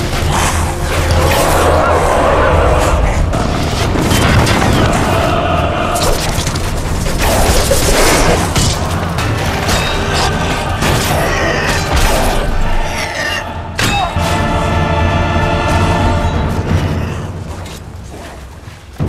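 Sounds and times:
orchestral score: 0.0 - 19.0
heavy booms and crashes: 0.9 - 9.7.

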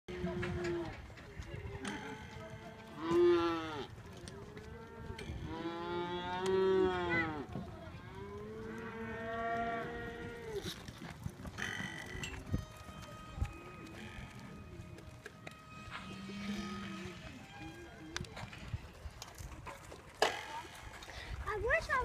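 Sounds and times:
cattle mooing: 1.8 - 3.9, 4.8 - 7.5, 8.1 - 10.8, 11.6 - 12.3, 15.9 - 17.5.

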